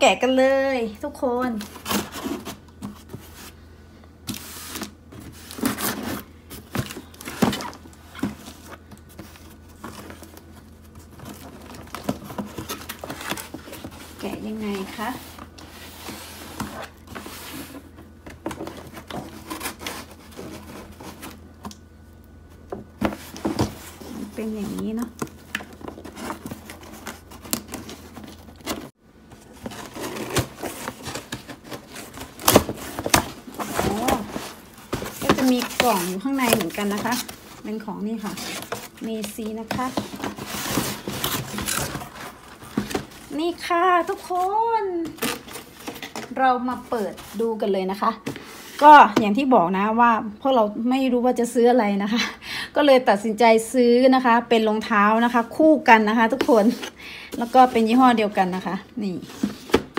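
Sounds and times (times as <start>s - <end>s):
blade scraping cardboard box: 29.6s - 43.3s.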